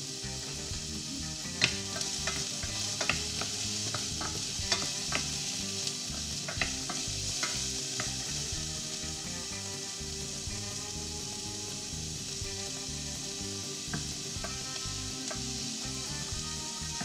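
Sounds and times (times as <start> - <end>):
sausage sizzling in a pot: 0.0 - 17.0
wooden spoon clicks and taps: 1.6 - 5.4.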